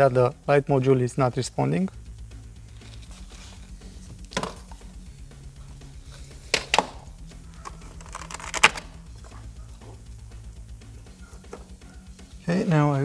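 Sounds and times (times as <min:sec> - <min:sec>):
quiet background music: 0:00.0 - 0:13.0
knocks and clicks of gear handled: 0:04.2 - 0:04.8, 0:06.5 - 0:07.0.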